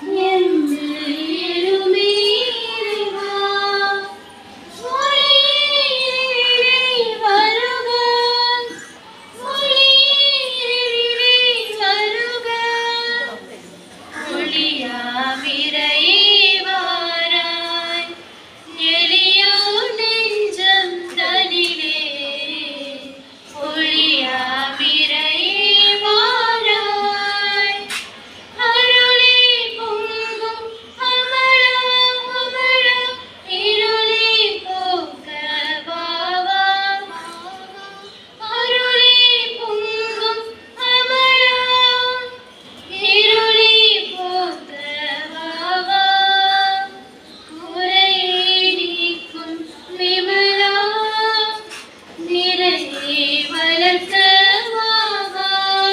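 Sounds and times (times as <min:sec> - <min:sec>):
woman singing into microphone: 0:00.0 - 0:55.9.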